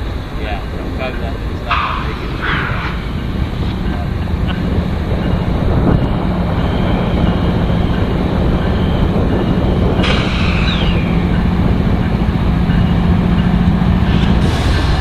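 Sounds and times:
diesel locomotive engine drone: 0.0 - 15.0
train rolling on rails: 0.0 - 15.0
falling squeal: 1.7 - 4.2, 10.0 - 11.5.

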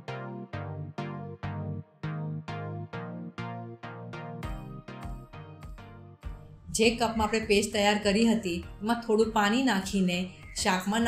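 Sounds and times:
instrumental music with struck notes: 4.4 - 6.6.

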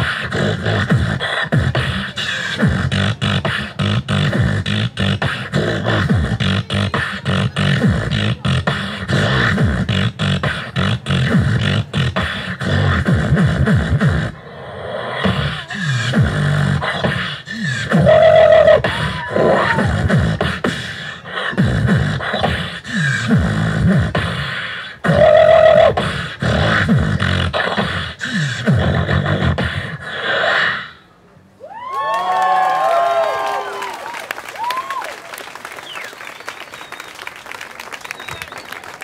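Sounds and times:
person beatboxing: 0.0 - 31.1.

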